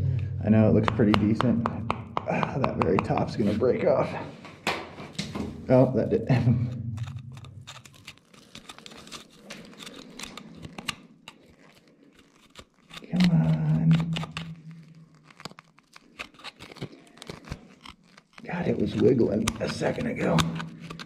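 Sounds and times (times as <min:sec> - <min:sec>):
steel rod scraping rock: 0:16.1 - 0:21.0.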